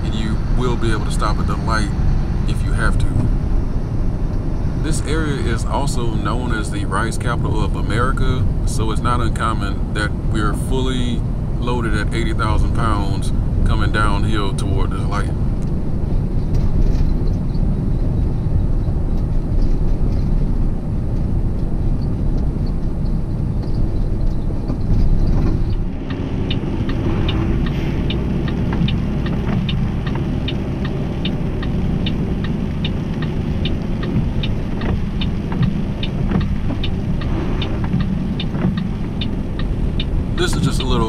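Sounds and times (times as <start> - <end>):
truck engine running: 0.0 - 41.0
regular ticking: 22.3 - 41.0.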